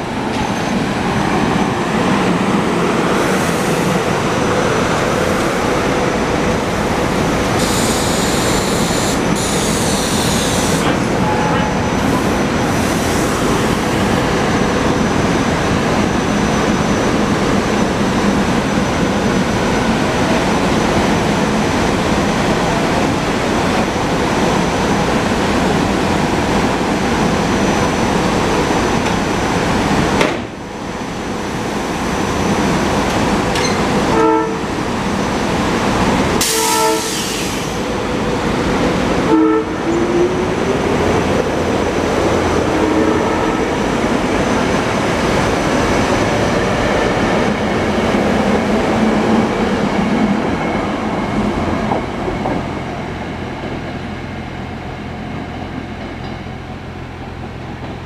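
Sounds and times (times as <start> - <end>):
train horn blasts: 7.6 - 11.8, 34.1 - 34.7, 36.4 - 37.5, 39.3 - 40.1.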